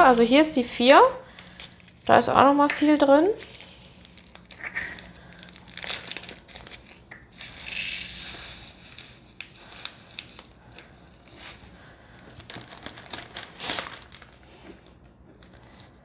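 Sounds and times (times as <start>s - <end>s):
plastic bags crinkling: 0.8s - 16.0s.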